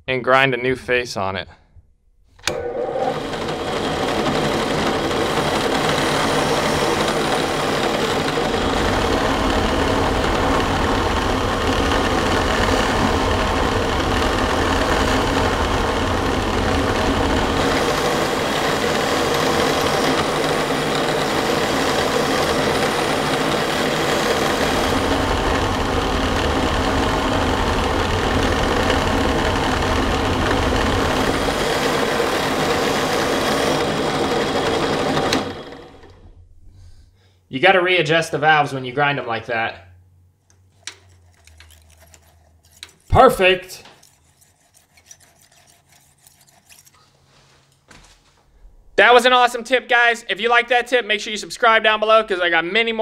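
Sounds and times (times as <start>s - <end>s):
drill press sanding steel: 2.5s - 36.1s, 40.8s - 47.2s.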